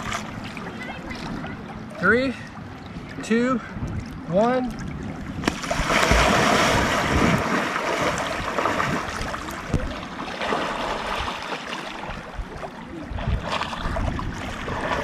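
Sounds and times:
water sloshing: 0.0 - 15.0
person diving into water: 4.9 - 15.0.

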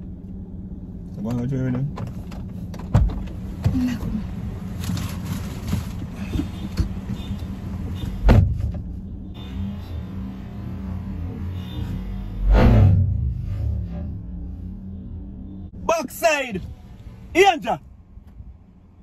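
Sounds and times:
car door slamming: 1.8 - 4.0, 8.0 - 8.9.

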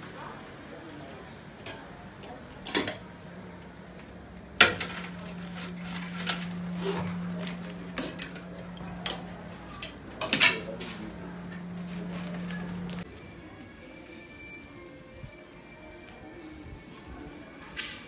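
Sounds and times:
steady low hum: 3.1 - 13.1.

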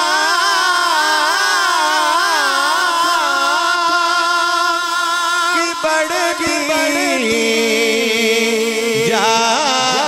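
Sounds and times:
man singing into microphone: 0.0 - 10.0.

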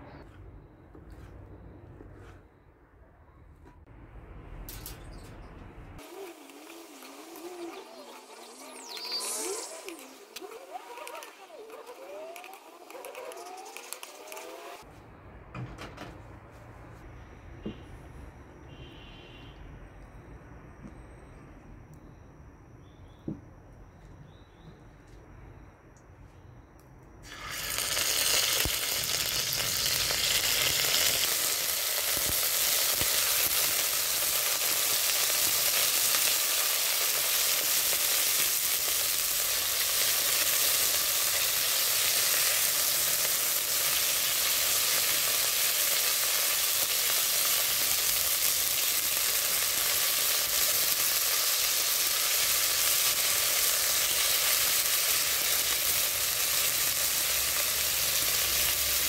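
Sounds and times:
chicken sizzling in hot oil: 6.0 - 14.9, 27.2 - 59.0.

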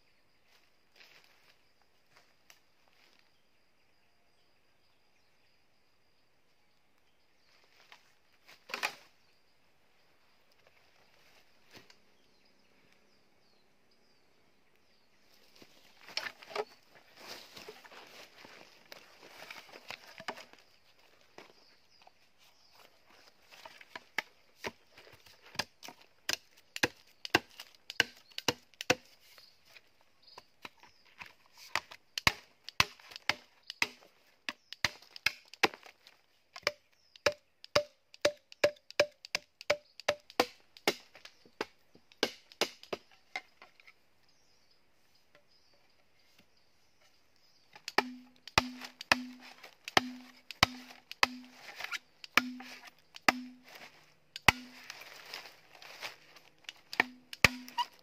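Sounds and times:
machete chopping bamboo: 19.5 - 20.6, 23.5 - 29.3, 30.6 - 43.6, 47.7 - 58.0.

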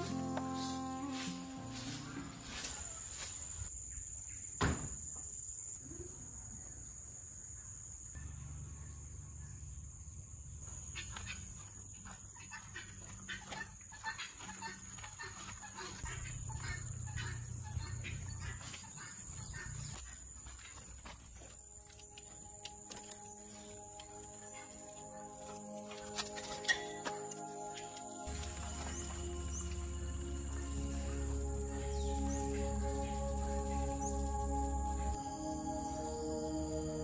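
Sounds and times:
insects droning: 0.0 - 37.0
chickens clucking: 12.1 - 20.1.

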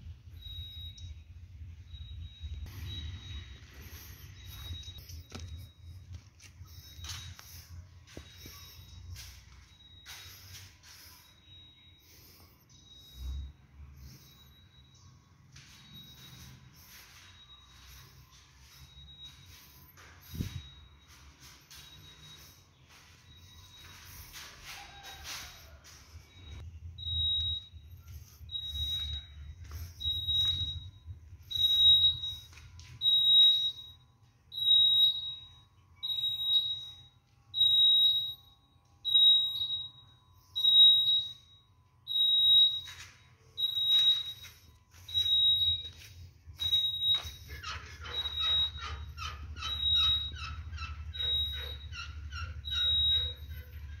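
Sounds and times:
high electronic alarm beeps: 0.0 - 54.0
lower rising chirps: 0.4 - 32.6.

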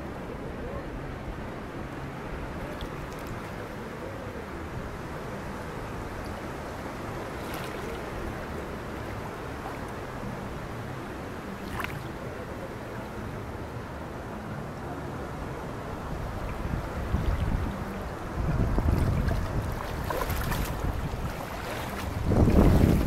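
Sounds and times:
seawater lapping: 2.0 - 23.0
wind on microphone: 15.3 - 23.0.

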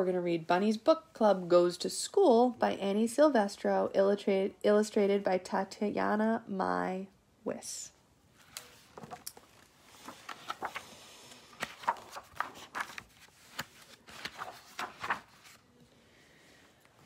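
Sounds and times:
book pages flipping: 8.4 - 15.8.

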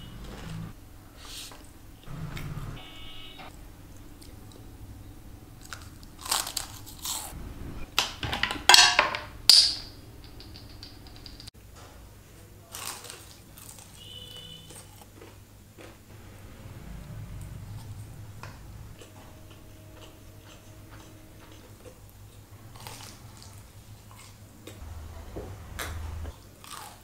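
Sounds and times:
chewing crunchy food: 5.6 - 7.4, 12.7 - 16.2, 19.0 - 24.8, 25.8 - 27.0.

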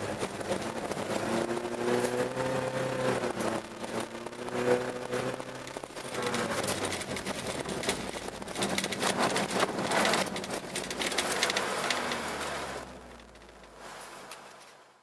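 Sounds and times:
car engine running: 0.0 - 13.8
tyres crackling on ice: 3.0 - 14.6.

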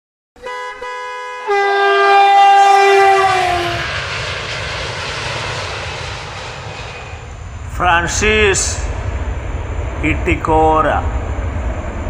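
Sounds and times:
train horn chord: 0.4 - 4.0
passing train rumble: 0.4 - 12.0.

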